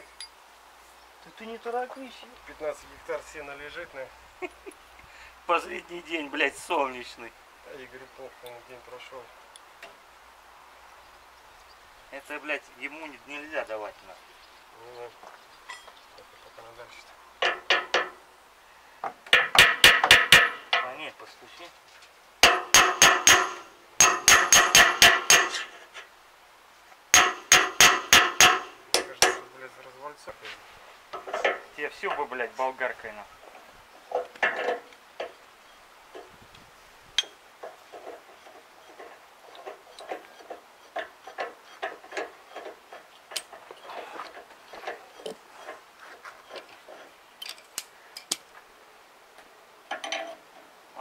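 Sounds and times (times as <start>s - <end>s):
hammer striking steel: 19.3s - 20.9s, 22.4s - 25.7s, 27.1s - 29.4s
hand tools clinking on metal: 22.4s - 25.8s, 34.1s - 35.4s, 49.9s - 50.4s.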